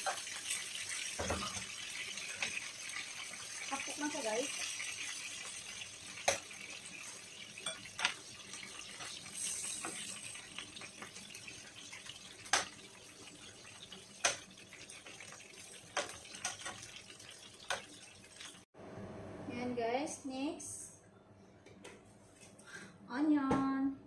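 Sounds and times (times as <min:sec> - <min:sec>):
chicken sizzling in hot oil: 0:00.0 - 0:18.7
tongs clicking on pan: 0:06.2 - 0:06.5, 0:07.6 - 0:08.2.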